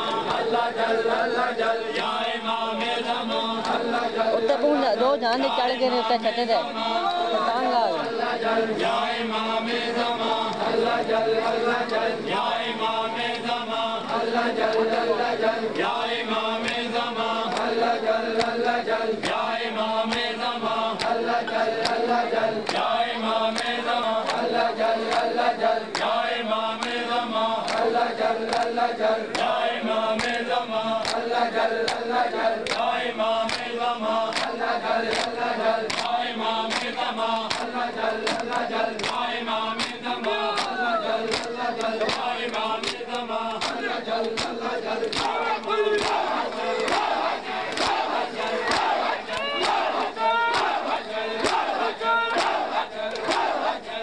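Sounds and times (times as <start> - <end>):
men chanting in unison: 0.0 - 54.0
hands slapping chests: 3.6 - 3.8, 19.2 - 19.5, 20.1 - 20.4, 21.0 - 22.9, 25.9 - 26.2, 28.5 - 29.5, 30.2 - 30.4, 31.0 - 32.9, 33.5 - 53.7.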